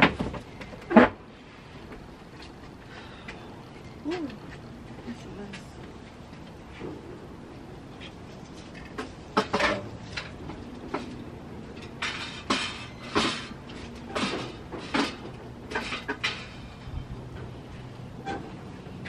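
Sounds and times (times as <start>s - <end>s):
objects knocking and clattering: 0.0s - 1.2s, 8.6s - 16.6s.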